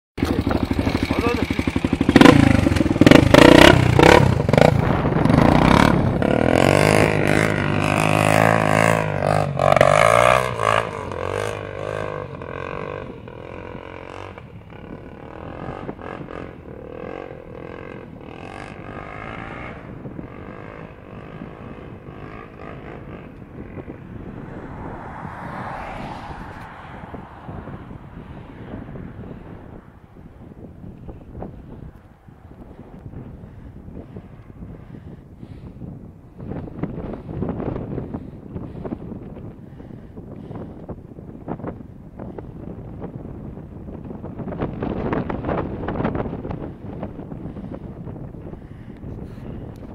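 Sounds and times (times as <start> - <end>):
motorcycle engine revving: 0.2 - 30.3.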